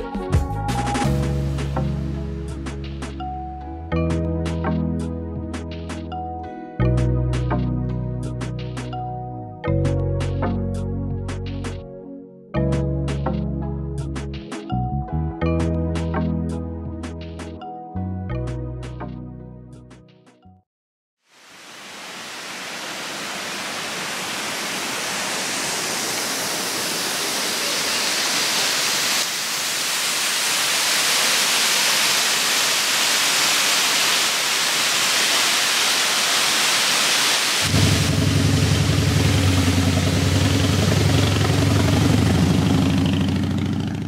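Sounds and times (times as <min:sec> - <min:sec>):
waterfall rushing: 0:21.3 - 0:43.4
vehicle engine humming: 0:37.7 - 0:44.0.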